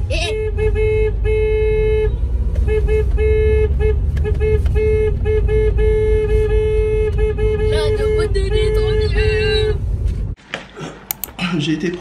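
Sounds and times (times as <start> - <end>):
car rumbling on road: 0.0 - 10.4
car horn honking: 0.1 - 9.8.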